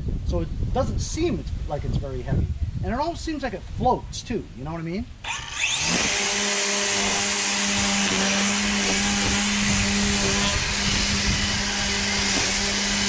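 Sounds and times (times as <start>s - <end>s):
string trimmer motor whine: 5.2s - 13.0s.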